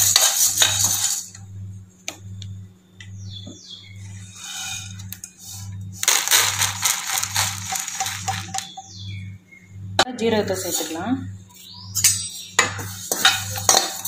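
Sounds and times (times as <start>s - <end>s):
lentils scraping in metal pan: 0.0s - 1.4s, 4.1s - 8.8s, 12.8s - 14.0s
lentils pouring out of pan: 6.0s - 8.7s.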